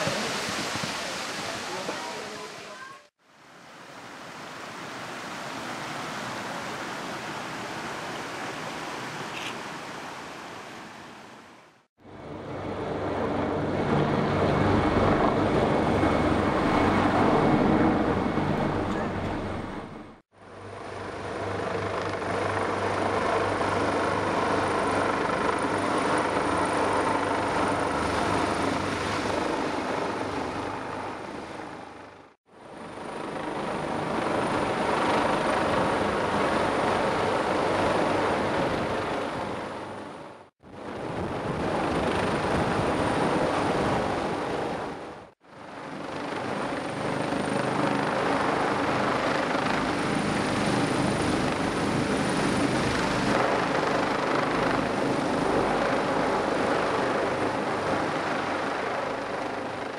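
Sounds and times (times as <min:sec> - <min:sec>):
helicopter hovering: 0:12.0 - 0:59.9.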